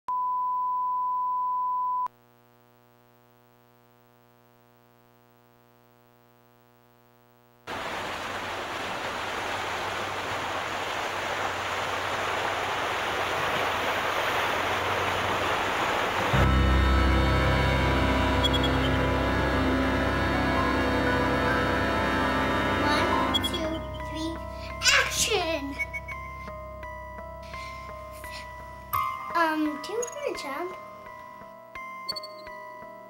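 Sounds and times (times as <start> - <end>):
deep loud music note: 16.3 - 24.1
steady test tone: 16.3 - 24.8.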